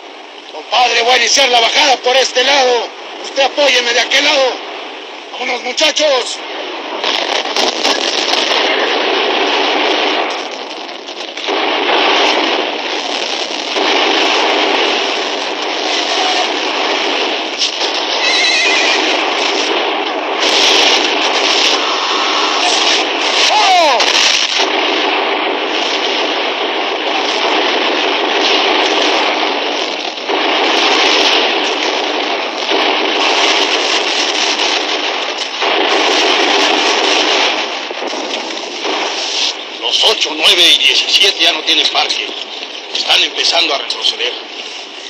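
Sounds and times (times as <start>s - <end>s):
gunfire: 5.8s - 45.0s
cavalry charge din: 11.2s - 44.5s
horse whinnying: 18.1s - 19.2s.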